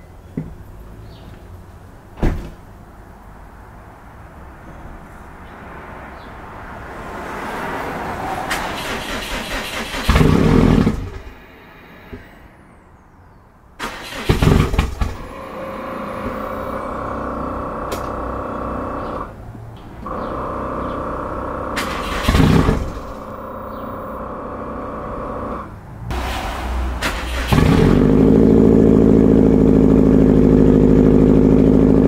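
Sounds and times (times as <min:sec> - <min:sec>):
car engine starting and running: 0:06.1 - 0:12.8, 0:13.8 - 0:32.0
rising whine: 0:25.3 - 0:30.4.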